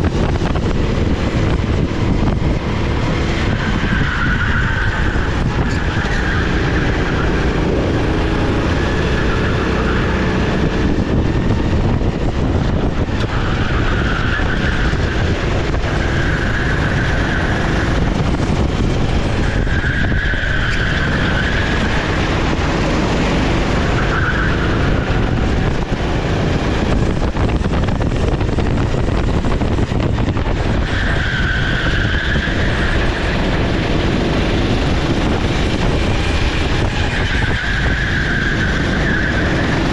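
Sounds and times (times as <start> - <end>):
kart engine running: 0.0 - 39.9
tyre squeal: 3.3 - 10.9, 12.8 - 18.1, 19.2 - 22.3, 23.8 - 25.9, 30.6 - 39.9.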